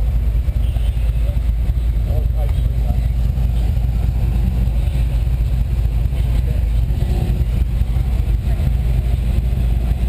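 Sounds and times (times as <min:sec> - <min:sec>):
car engines rumbling: 0:00.0 - 0:10.0.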